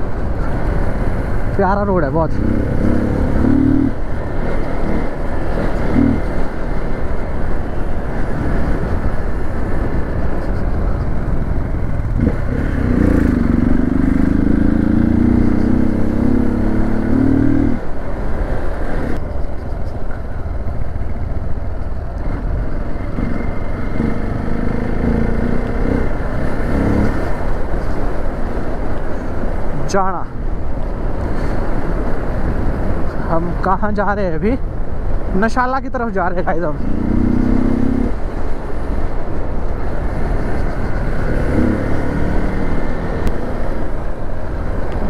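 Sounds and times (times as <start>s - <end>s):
motorcycle engine running: 10.0s - 17.8s, 19.2s - 27.9s.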